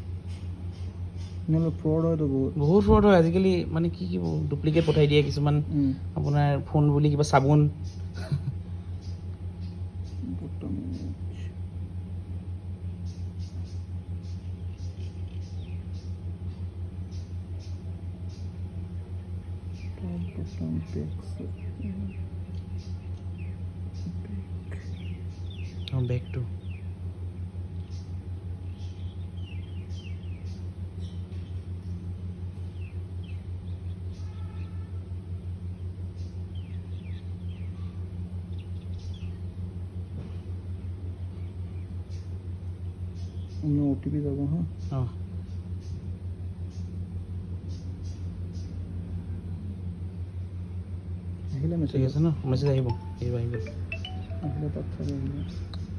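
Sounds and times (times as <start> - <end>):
pulsing low rumble: 0.0 - 33.7
engine idling: 0.0 - 55.9
high bird chirps: 52.7 - 55.9.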